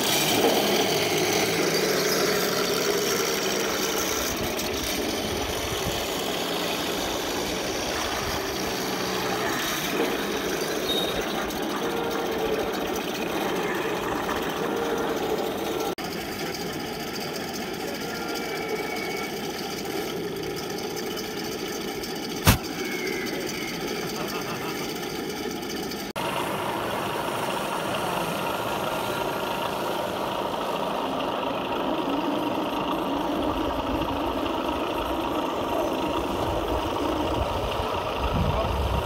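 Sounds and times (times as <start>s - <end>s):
model tanks humming: 0.0s - 39.0s
sharp crack: 22.4s - 22.8s.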